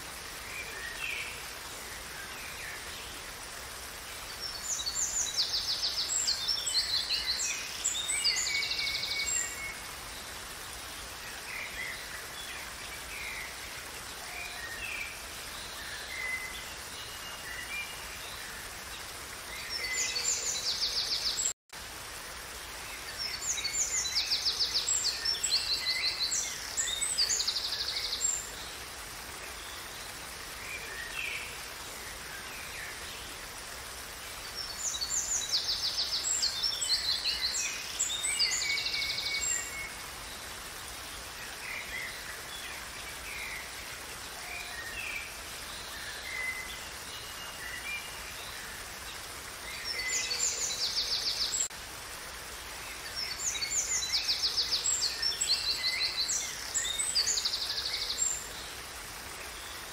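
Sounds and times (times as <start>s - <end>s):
rush of falling water: 0.0s - 59.9s.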